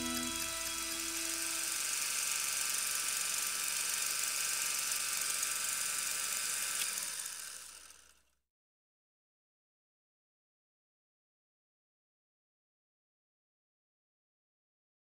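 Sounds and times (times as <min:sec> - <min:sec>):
held music chord: 0:00.0 - 0:01.8
steady high hiss: 0:00.0 - 0:01.8.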